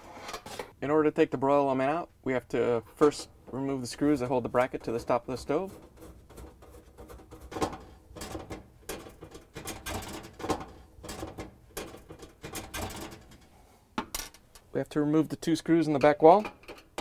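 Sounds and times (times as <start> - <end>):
screwdriver scraping screw: 5.3 - 8.3.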